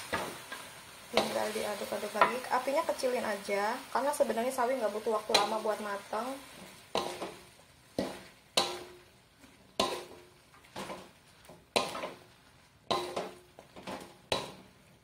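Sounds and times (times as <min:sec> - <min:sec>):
wooden spatula clacking on wok: 0:05.2 - 0:05.6, 0:06.9 - 0:07.4, 0:08.0 - 0:09.1, 0:09.7 - 0:14.8.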